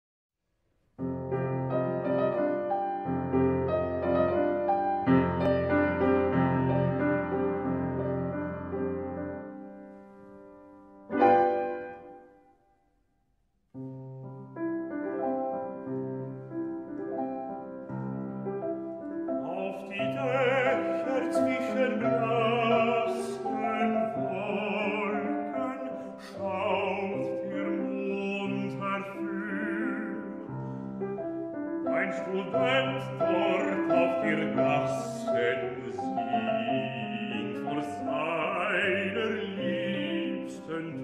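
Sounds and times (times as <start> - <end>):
piano accompaniment: 1.0 - 12.9, 13.7 - 41.0
baritone singing with vibrato: 19.4 - 30.5, 31.8 - 41.0.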